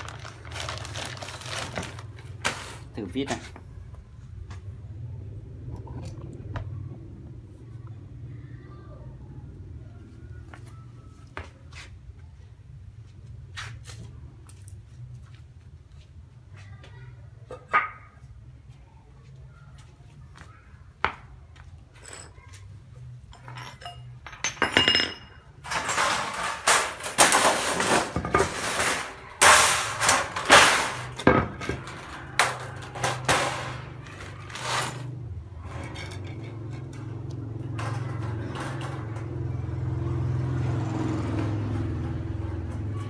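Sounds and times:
thin metal sheet crackling: 0.0s - 3.3s, 25.6s - 39.5s.

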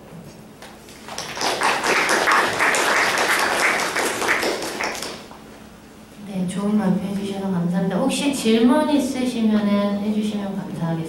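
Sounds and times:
audience applauding: 1.0s - 5.3s.

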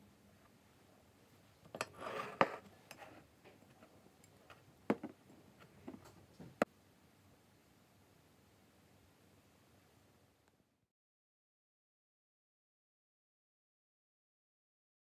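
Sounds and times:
dishes scraping on wooden table: 1.7s - 3.2s
dishes knocking on table: 4.9s - 5.2s.

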